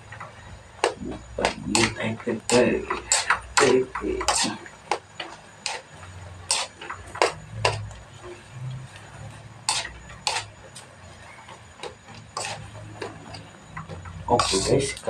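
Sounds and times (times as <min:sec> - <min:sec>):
noodles frying: 0:00.8 - 0:10.8, 0:11.6 - 0:15.0
metal utensil scraping a wok: 0:02.5 - 0:03.4, 0:04.2 - 0:04.6, 0:05.6 - 0:07.8, 0:09.6 - 0:10.6, 0:12.2 - 0:13.4, 0:14.3 - 0:14.9.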